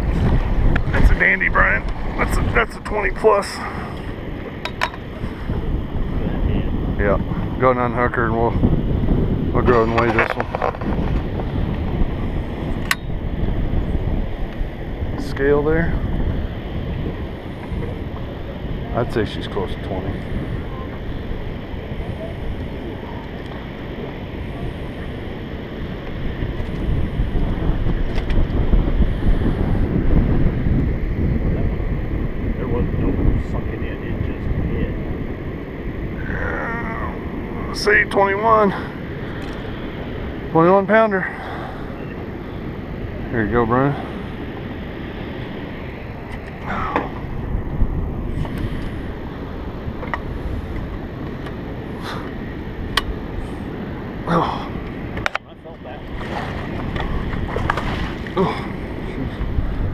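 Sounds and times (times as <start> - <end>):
water lapping boat hull: 0.0 - 7.7, 34.9 - 59.9
wind buffeting microphone: 0.0 - 59.9.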